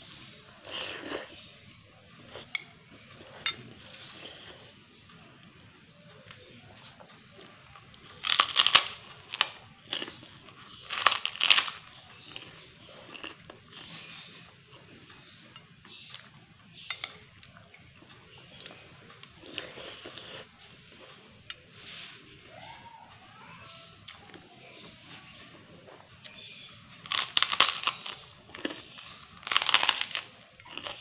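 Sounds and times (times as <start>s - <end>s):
chewing crunches: 0.1s - 5.5s, 6.3s - 21.6s, 25.9s - 31.0s
person crunching cracker: 8.0s - 14.5s, 18.0s - 20.5s, 27.0s - 31.0s.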